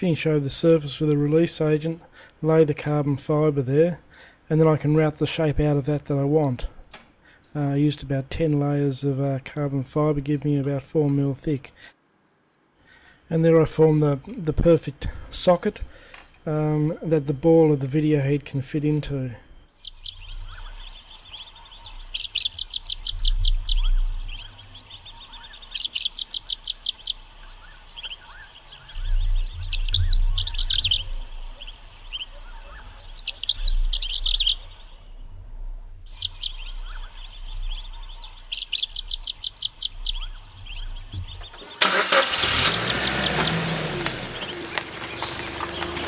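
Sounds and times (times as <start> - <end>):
vehicle engine pulling away: 41.3 - 46.0.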